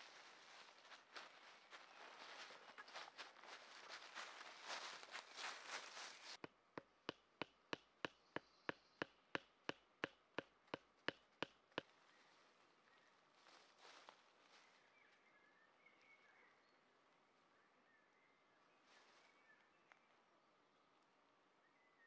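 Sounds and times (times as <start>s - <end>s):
footsteps in dry leaves: 0.0s - 6.4s, 13.3s - 14.9s
stake being hammered: 6.4s - 11.9s.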